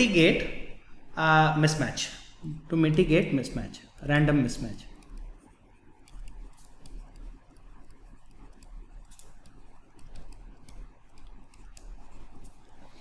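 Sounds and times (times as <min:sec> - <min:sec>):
steady low hum: 0:00.0 - 0:13.0
stylus tapping on a tablet: 0:05.0 - 0:12.6.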